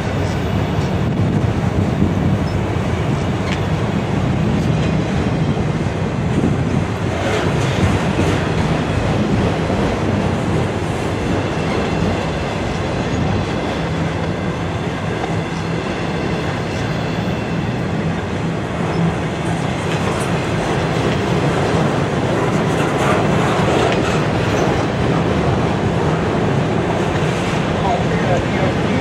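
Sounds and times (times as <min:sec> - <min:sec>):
freight train wheels rumbling: 0:00.0 - 0:29.0
wheels clickety-clack: 0:18.9 - 0:29.0.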